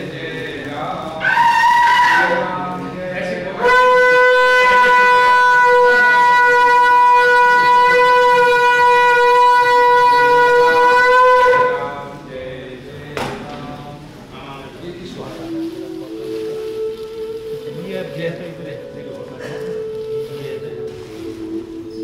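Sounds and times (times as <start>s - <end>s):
conch shell blown: 1.2s - 2.9s, 3.5s - 12.2s, 15.3s - 22.0s.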